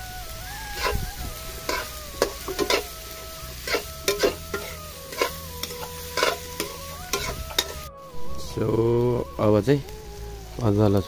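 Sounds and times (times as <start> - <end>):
faint stepping melody: 0.0 - 11.0
hot oil sizzling: 0.0 - 11.0
metal spatula scraping pan: 0.7 - 3.0, 3.6 - 7.9.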